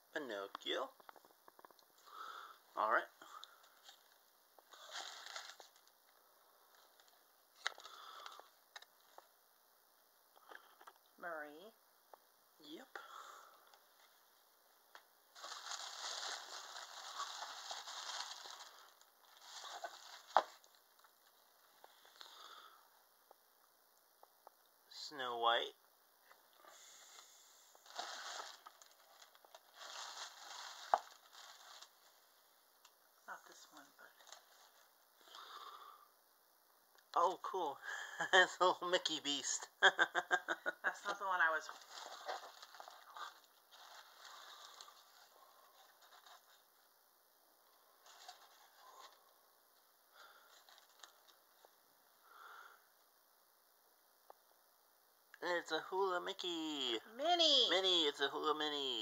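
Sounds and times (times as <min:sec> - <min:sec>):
tissue paper rustling: 0:03.6 - 0:05.9, 0:15.3 - 0:21.8, 0:27.8 - 0:32.5, 0:33.6 - 0:34.9, 0:41.6 - 0:46.7, 0:48.0 - 0:49.3.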